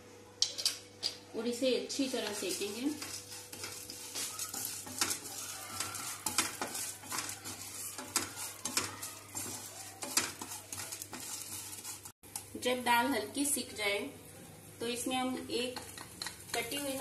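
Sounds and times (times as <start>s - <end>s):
wooden spatula scraping a pan: 1.9s - 12.2s
spices sizzling in oil: 1.9s - 17.0s.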